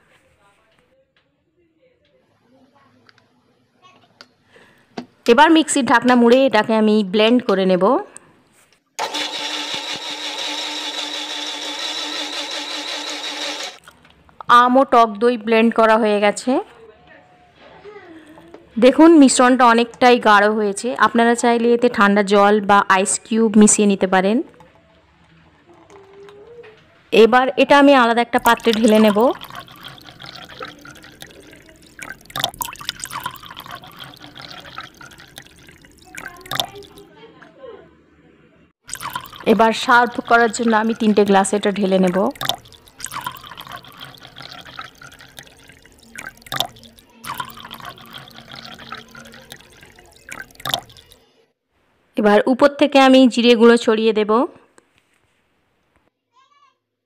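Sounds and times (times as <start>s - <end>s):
mixer grinder motor running: 9.0s - 13.8s
thick liquid pouring and splashing: 28.4s - 37.0s, 38.8s - 51.2s.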